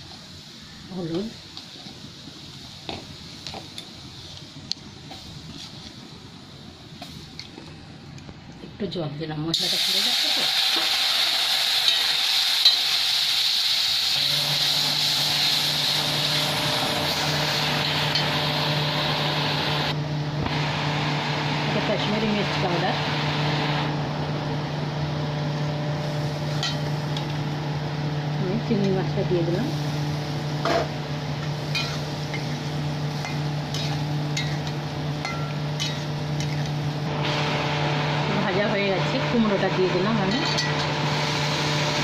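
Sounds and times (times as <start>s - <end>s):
spices sizzling in hot oil: 0.0s - 7.7s, 9.3s - 23.8s, 25.5s - 42.0s
steady low hum: 14.1s - 42.0s
metal spatula stirring in a pan: 31.5s - 36.8s, 40.3s - 40.9s.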